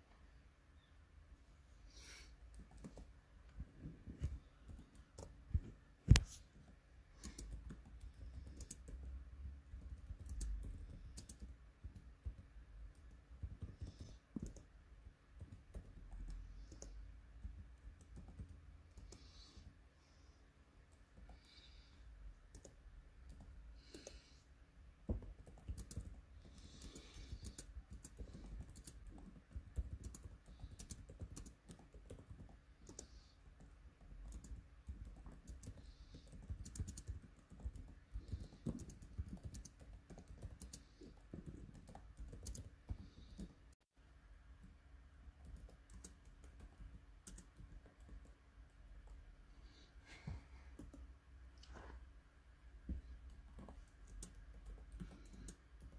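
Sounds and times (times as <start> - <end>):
laptop keyboard clicking: 7.2 - 9.1, 9.7 - 14.7, 25.1 - 43.6, 45.4 - 48.4.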